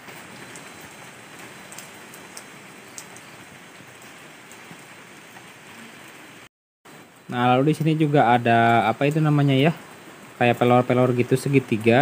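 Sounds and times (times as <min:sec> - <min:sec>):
steady hiss: 0:06.9 - 0:12.0.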